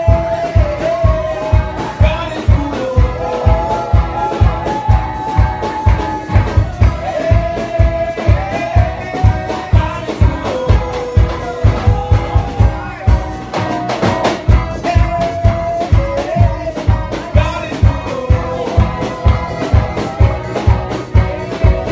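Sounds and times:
upbeat dance music: 0:00.0 - 0:21.9.

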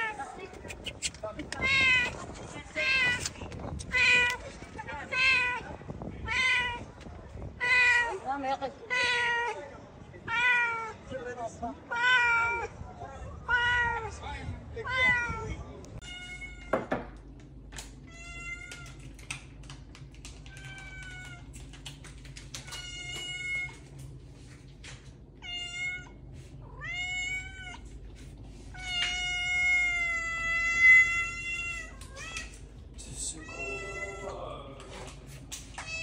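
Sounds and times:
cat meowing: 0:05.0 - 0:07.0, 0:07.6 - 0:08.2, 0:08.9 - 0:09.6, 0:11.9 - 0:12.7, 0:13.4 - 0:14.1, 0:14.8 - 0:16.8, 0:18.0 - 0:19.0, 0:20.4 - 0:21.6, 0:25.4 - 0:27.9, 0:28.7 - 0:32.6, 0:33.4 - 0:34.4.

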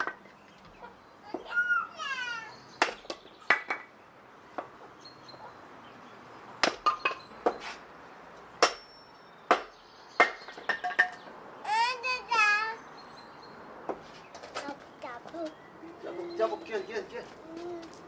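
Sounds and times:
hatchet splitting firewood: 0:08.6 - 0:10.6.

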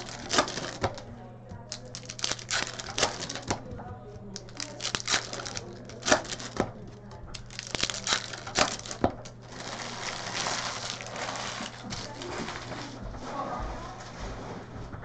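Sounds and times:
wrapper clicks and snaps: 0:00.0 - 0:01.0, 0:01.7 - 0:03.6, 0:04.4 - 0:06.7, 0:07.3 - 0:12.3
card packs crinkling and tearing: 0:00.0 - 0:01.1, 0:01.7 - 0:03.6, 0:04.3 - 0:13.0.

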